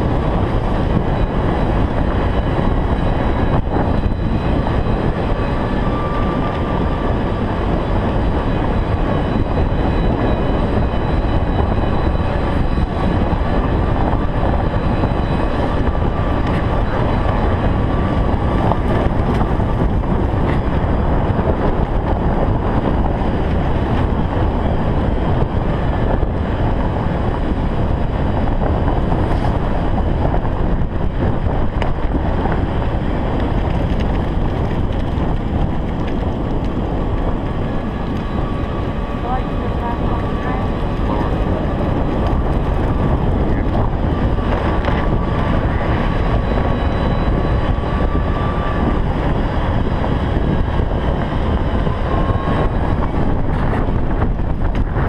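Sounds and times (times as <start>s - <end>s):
golf cart rumbling: 0.0s - 55.0s
wind buffeting microphone: 0.0s - 55.0s.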